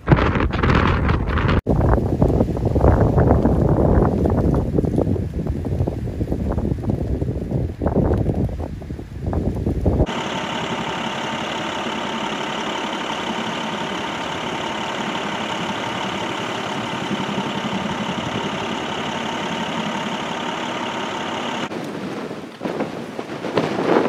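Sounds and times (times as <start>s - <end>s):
vehicle engine running: 10.0s - 21.7s.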